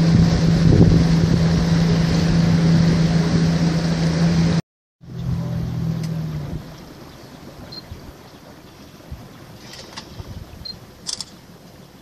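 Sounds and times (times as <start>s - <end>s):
wind noise: 0.0s - 3.6s, 9.0s - 10.8s
boat engine running: 0.0s - 12.0s
water noise: 0.0s - 12.0s.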